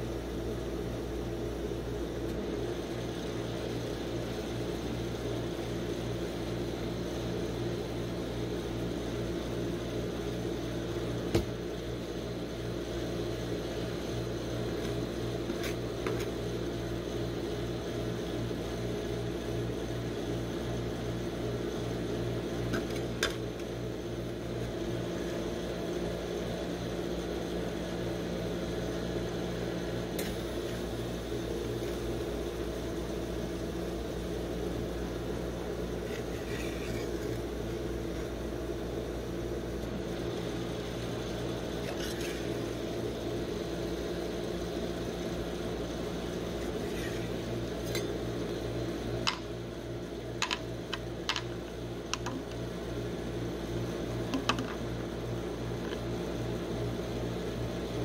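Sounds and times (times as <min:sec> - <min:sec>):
refrigeration machinery humming: 0:00.0 - 0:58.0
spatula scraping ice cream: 0:36.0 - 0:37.4, 0:41.8 - 0:42.7, 0:46.6 - 0:48.1.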